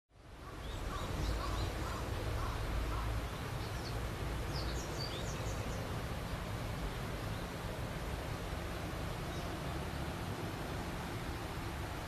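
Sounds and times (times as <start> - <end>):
river water rushing: 0.2 - 12.0
small birds chirping: 0.4 - 7.8, 8.7 - 10.5.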